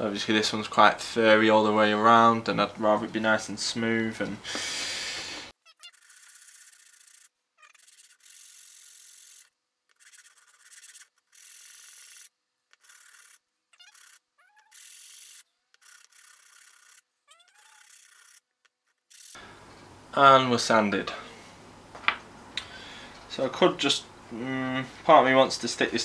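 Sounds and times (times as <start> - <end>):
wood rubbed on sandpaper: 5.9 - 17.0, 17.6 - 18.4.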